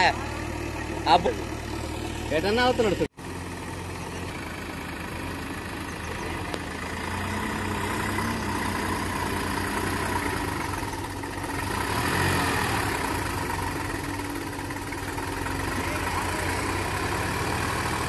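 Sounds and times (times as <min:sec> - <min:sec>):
diesel engines running: 0:00.0 - 0:18.0.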